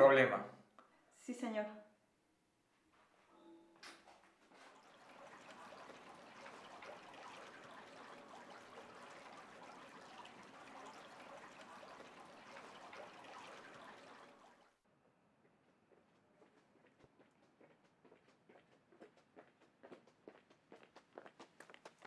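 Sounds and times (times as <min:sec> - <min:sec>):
faint trickle of running water: 0:03.9 - 0:14.8.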